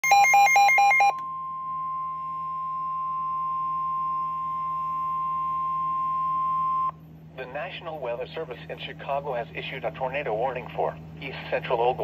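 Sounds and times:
steady alarm tone: 0:00.0 - 0:07.0.

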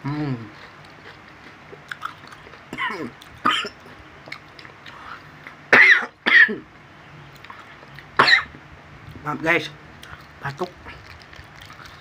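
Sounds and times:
man coughing: 0:02.8 - 0:03.8, 0:05.8 - 0:06.6.

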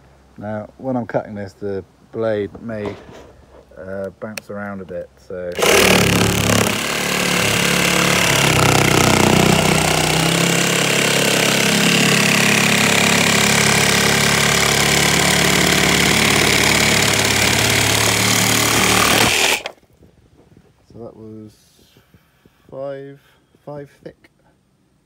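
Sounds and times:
reciprocating saw cutting plywood: 0:05.5 - 0:19.8.

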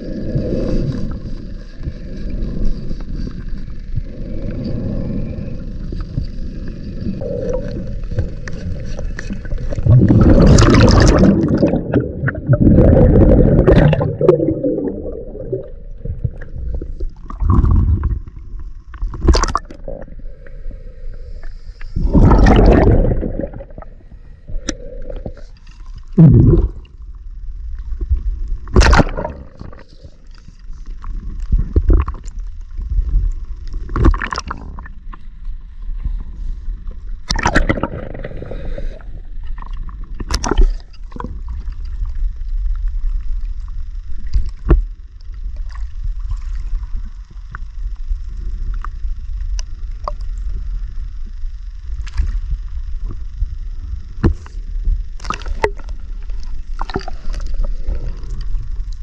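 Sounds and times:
bubbles gurgling from regulator: 0:07.0 - 0:20.2, 0:22.0 - 0:27.0, 0:28.6 - 0:29.9, 0:33.9 - 0:34.9, 0:37.2 - 0:39.0.

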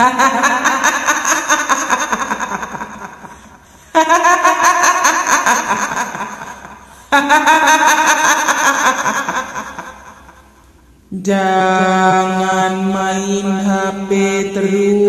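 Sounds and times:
woman cackling laugh: 0:00.0 - 0:10.5.

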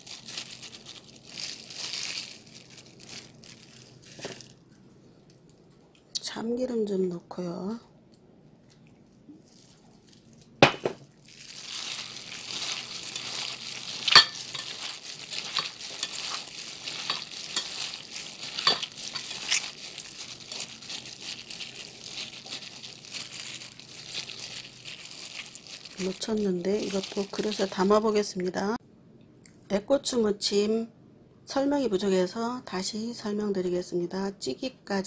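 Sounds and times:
plastic glove crinkling: 0:00.0 - 0:04.8, 0:09.3 - 0:28.3
food squishing: 0:11.1 - 0:27.7.

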